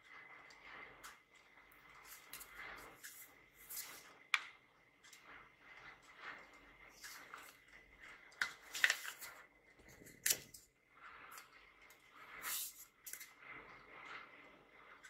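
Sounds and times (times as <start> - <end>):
paper envelopes rustling: 8.4 - 9.4.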